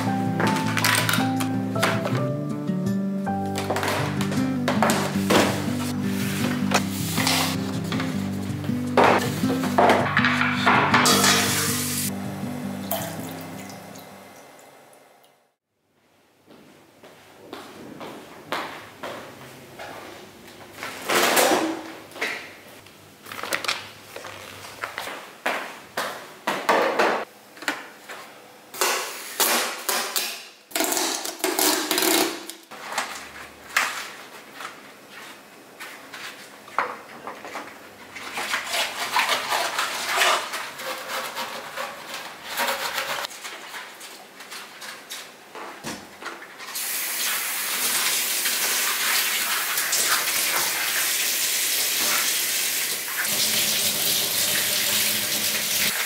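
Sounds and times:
dishes and utensils clinking: 9.0s - 11.9s
kitchen tap running water: 12.8s - 14.9s, 46.8s - 56.0s.

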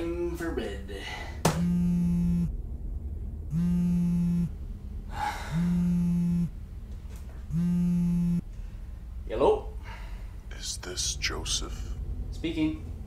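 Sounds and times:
phone vibrating on desk: 1.6s - 2.5s, 3.5s - 4.5s, 5.5s - 6.5s, 7.5s - 8.4s.

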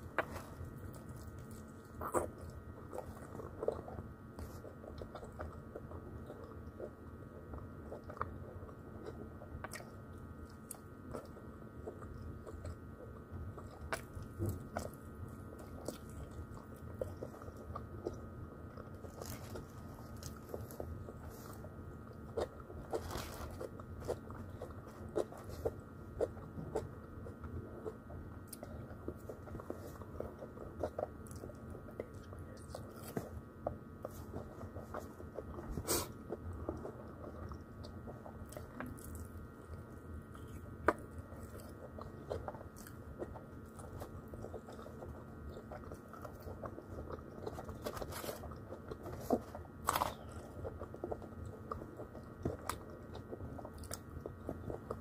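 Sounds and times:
chewing fried chicken: 0.0s - 55.0s
crisp crunches of breading: 40.3s - 55.0s.

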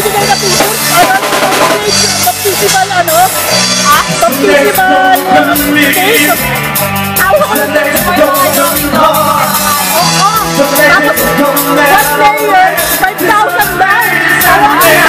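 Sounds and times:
woman singing: 0.0s - 6.5s, 7.2s - 15.0s
drums: 0.0s - 15.0s
electric guitar: 0.0s - 15.0s
man singing lead: 0.0s - 15.0s.

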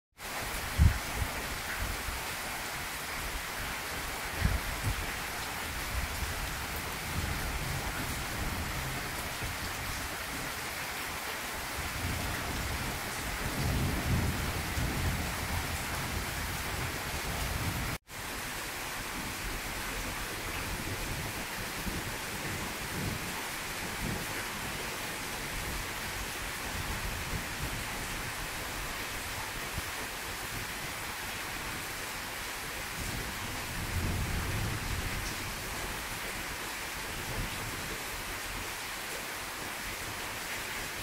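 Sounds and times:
heavy rain pouring: 0.2s - 41.0s.

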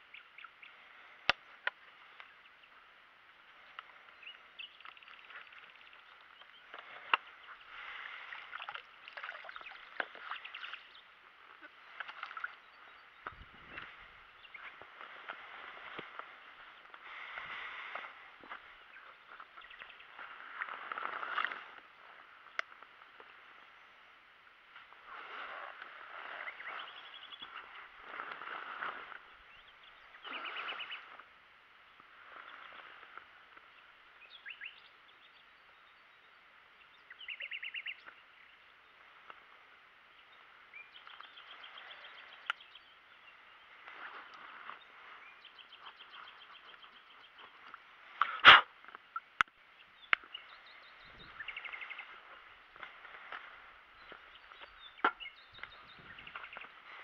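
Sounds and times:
birds trilling: 25.2s - 31.2s, 40.3s - 57.0s
soft rustling of wet mat: 43.1s - 48.2s, 50.5s - 55.0s.

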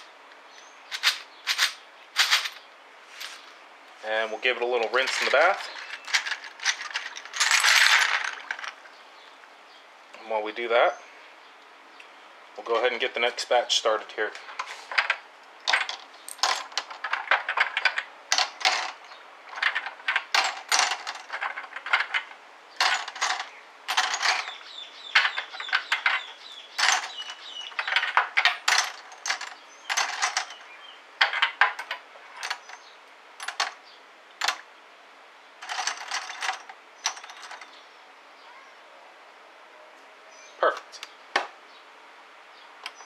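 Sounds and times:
metal cases clinking into tank: 15.0s - 33.8s.

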